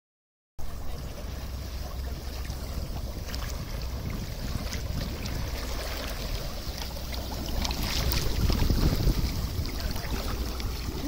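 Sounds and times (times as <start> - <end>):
low rumble: 0.6 - 11.0
gas bubbling up through water: 2.4 - 11.0.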